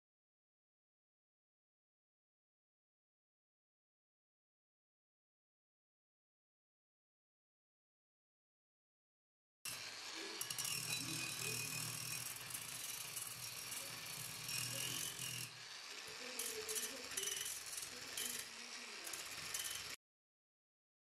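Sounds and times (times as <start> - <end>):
angle grinder sanding metal: 9.7 - 20.0.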